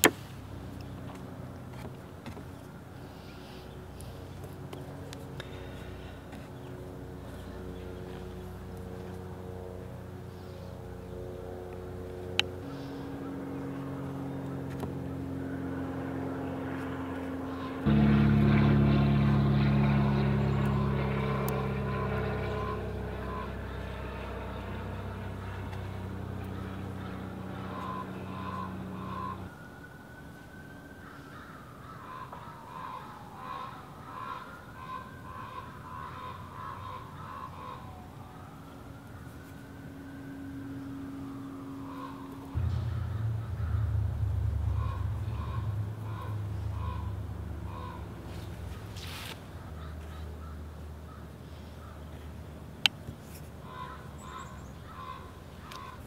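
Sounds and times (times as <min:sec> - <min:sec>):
vehicle engines running: 0:00.0 - 0:29.9, 0:31.4 - 0:56.0
siren wailing: 0:12.3 - 0:49.3.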